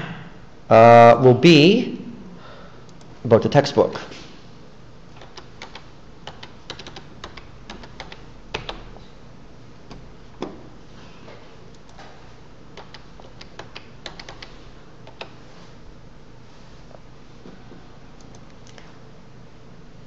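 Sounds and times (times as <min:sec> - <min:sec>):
computer keyboard typing: 0:05.2 - 0:09.0, 0:12.8 - 0:15.4.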